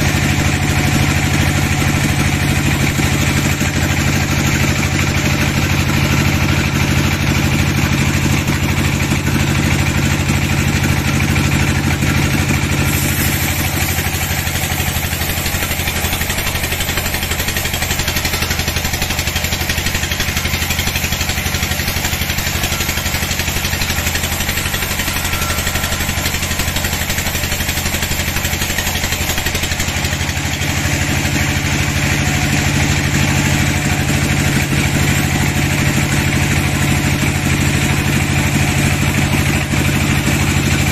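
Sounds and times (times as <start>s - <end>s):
band saw droning: 0.0s - 40.9s
saw blade hissing in wood: 12.2s - 32.2s.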